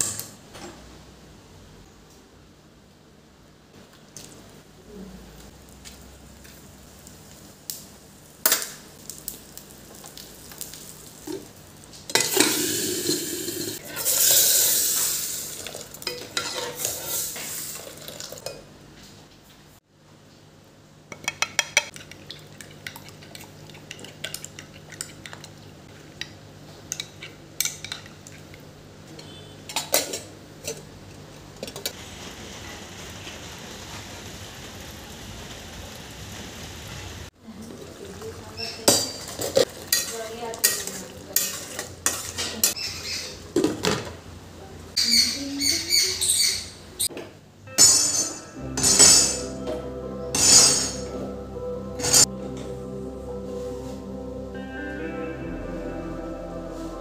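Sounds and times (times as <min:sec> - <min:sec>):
spices sizzling in hot oil: 0:05.4 - 0:18.4, 0:31.9 - 0:43.1.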